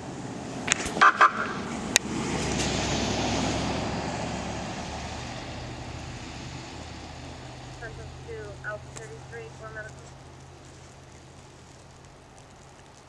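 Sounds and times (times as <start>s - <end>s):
car driving past on snow: 0.0s - 13.0s
sharp clicks: 0.7s - 1.3s.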